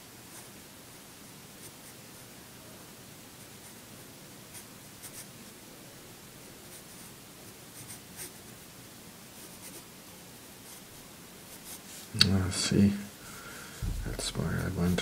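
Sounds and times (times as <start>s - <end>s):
faint steady hiss: 0.0s - 15.0s
pencil scratching on paper: 7.7s - 8.4s, 9.4s - 9.9s, 10.6s - 12.1s, 13.8s - 15.0s.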